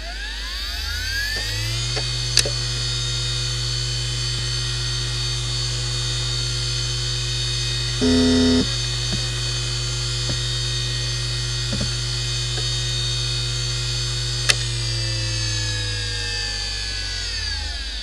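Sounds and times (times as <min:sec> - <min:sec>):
hard drive whine: 0:07.8 - 0:09.3
hard drive ticks: 0:08.0 - 0:08.7
loud buzz: 0:08.0 - 0:08.7.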